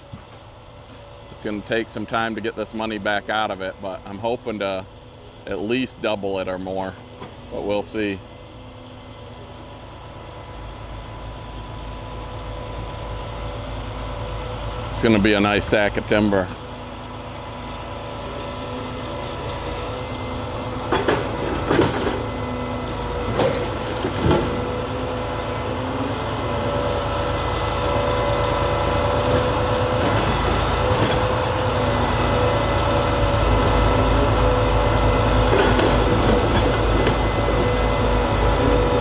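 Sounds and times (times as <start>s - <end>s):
log loader engine whine: 0.0s - 39.0s.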